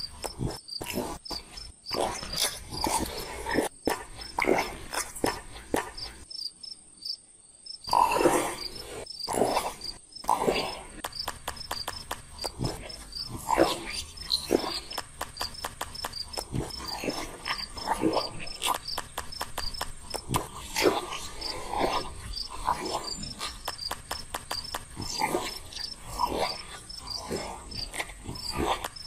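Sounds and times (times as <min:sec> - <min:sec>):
insects chirping: 0:00.0 - 0:29.0
sharp clicks: 0:11.0 - 0:26.3, 0:27.7 - 0:29.0.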